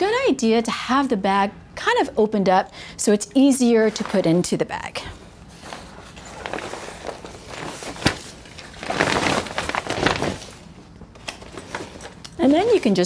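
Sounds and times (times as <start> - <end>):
nylon bag rustling and crinkling: 5.5 - 13.0.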